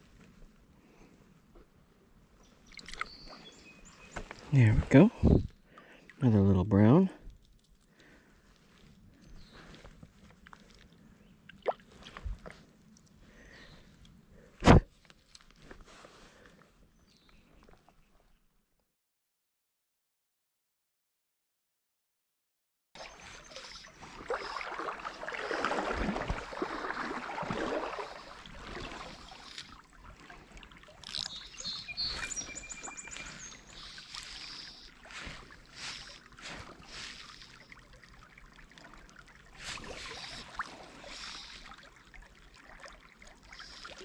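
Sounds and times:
creek water splashing: 7.9s - 13.6s, 23.0s - 44.0s
bird singing high notes: 31.3s - 34.0s.

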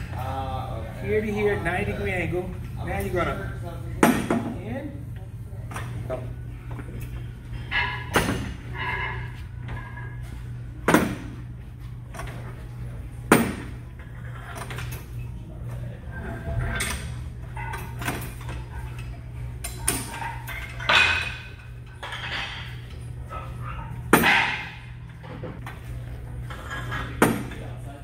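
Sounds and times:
steady low hum: 0.0s - 28.0s
gym weights clanking: 7.2s - 11.3s.

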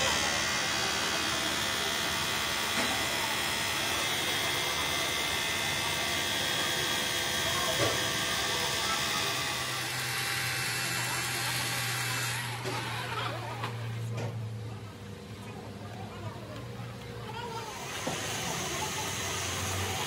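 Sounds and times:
angle grinder polishing metal: 0.0s - 13.3s.

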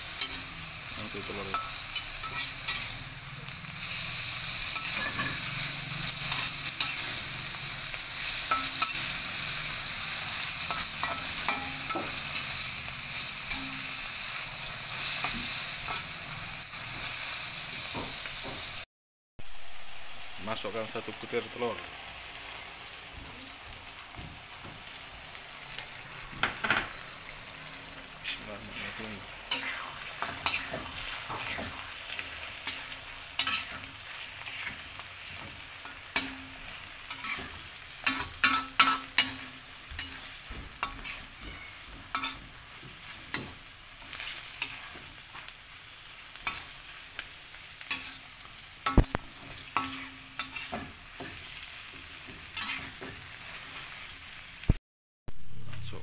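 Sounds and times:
food sizzling in a wok: 0.0s - 55.9s
spoon scraping a pan: 1.4s - 3.1s, 4.7s - 7.2s, 10.3s - 12.6s, 29.5s - 31.9s, 32.6s - 36.5s, 37.1s - 45.5s, 47.8s - 54.0s.

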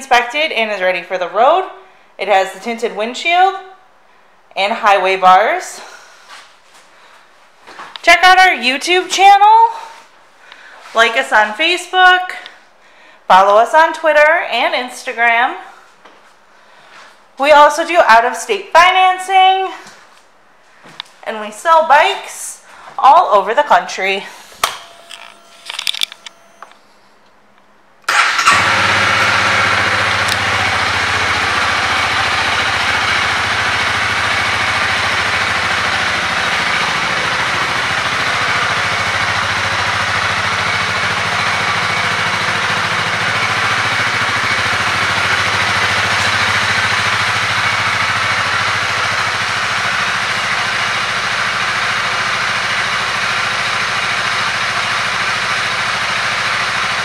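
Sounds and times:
motorcycle engine starting and idling: 24.3s - 27.0s, 28.0s - 57.0s.

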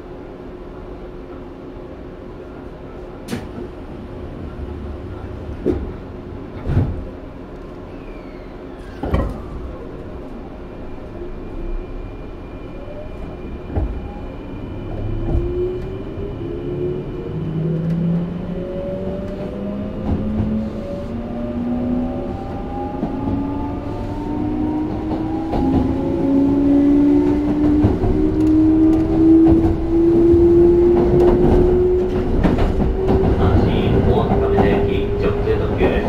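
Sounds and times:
train interior hum: 0.0s - 36.0s
train motor tones rising in pitch: 11.4s - 33.3s.

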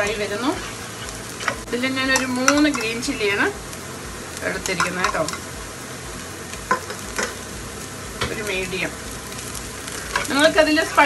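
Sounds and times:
onions sizzling in a frying pan: 0.0s - 11.0s
spatula scraping a pan: 0.1s - 3.0s, 9.8s - 11.0s.

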